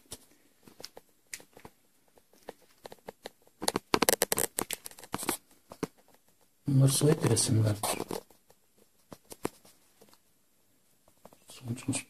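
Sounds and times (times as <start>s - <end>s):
scrapes and rustles: 0.0s - 10.3s.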